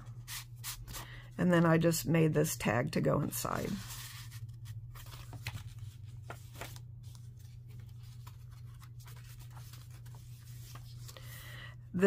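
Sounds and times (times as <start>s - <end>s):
low steady hum: 0.0s - 12.0s
paper and card rustling: 3.5s - 11.4s
pages turning: 3.6s - 11.3s.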